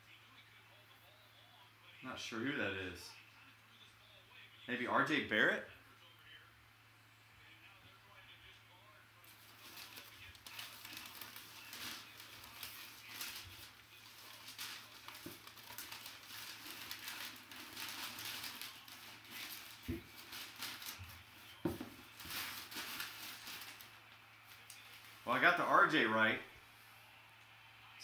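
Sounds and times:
packing paper rustling: 9.2 - 25.4.

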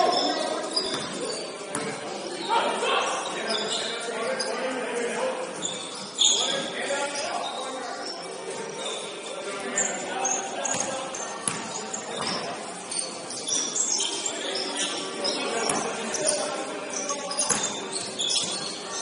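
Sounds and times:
sneakers squeaking on court: 0.0 - 4.7, 5.5 - 19.0
basketball bouncing: 10.7 - 12.5.

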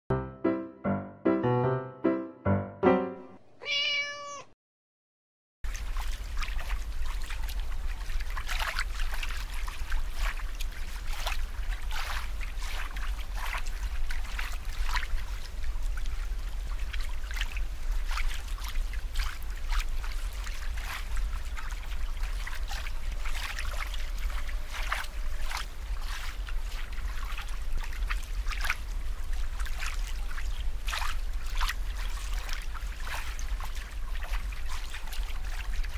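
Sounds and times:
short piano jingle: 0.1 - 3.5
cat meow: 3.6 - 4.6
aquarium water bubbling: 5.7 - 35.9.

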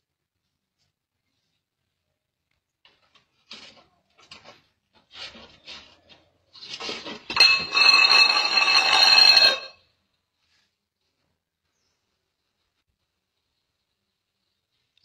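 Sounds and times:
metallic rattling with ringing: 7.3 - 9.8.

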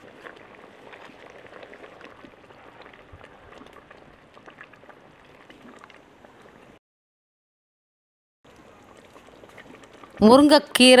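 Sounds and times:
gravy bubbling in a pot: 0.0 - 6.8, 8.5 - 11.0.

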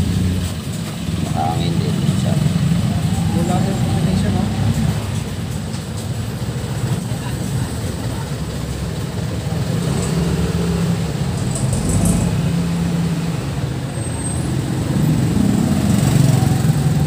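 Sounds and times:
vehicle engine running: 3.7 - 13.8.

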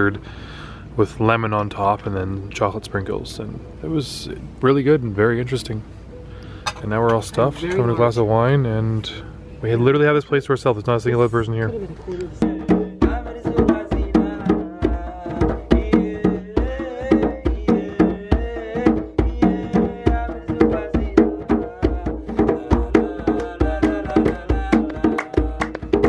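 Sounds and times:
man singing: 11.5 - 26.0
hand drums playing: 12.4 - 26.0
hand clapping: 24.2 - 26.0.

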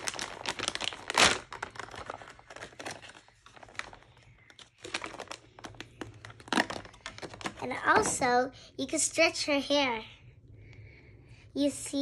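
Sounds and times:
plastic packaging crinkling: 0.0 - 8.1.

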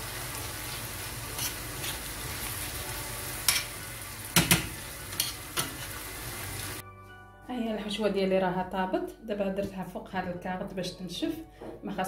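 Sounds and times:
filling sizzling in a pan: 0.0 - 6.8.

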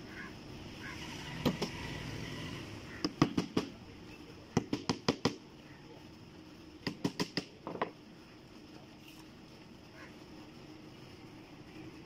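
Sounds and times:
hammer striking wood: 3.0 - 3.7.

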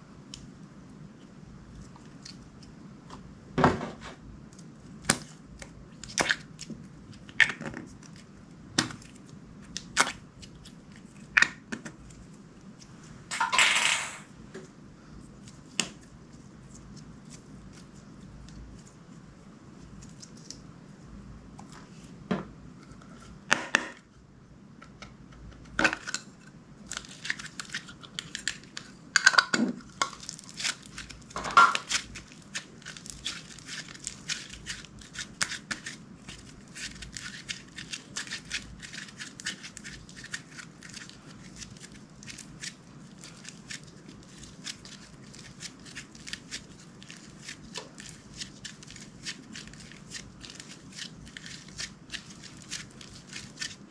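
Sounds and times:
slime squishing with sticky pops: 4.4 - 12.9, 29.8 - 53.9.

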